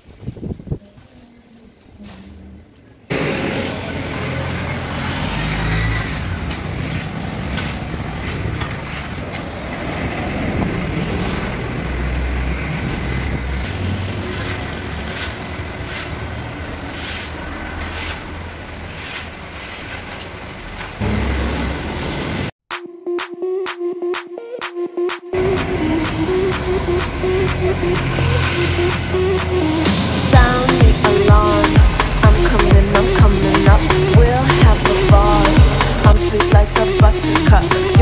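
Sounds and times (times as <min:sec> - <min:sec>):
highway traffic rumble: 0:01.9 - 0:22.6, 0:25.4 - 0:38.0.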